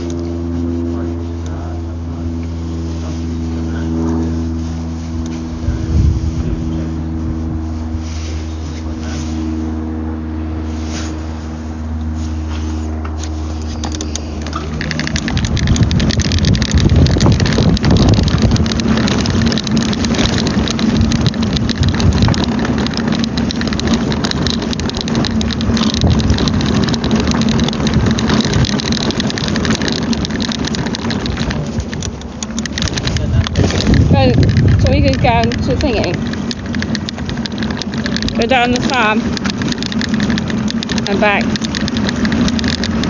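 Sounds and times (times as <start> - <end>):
low steady hum: 0.0 - 43.0
phone microphone handling noise: 12.0 - 43.0.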